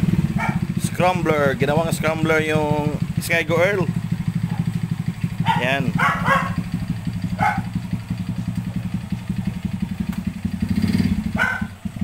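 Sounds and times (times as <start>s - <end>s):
small motorcycle engine idling: 0.0s - 12.0s.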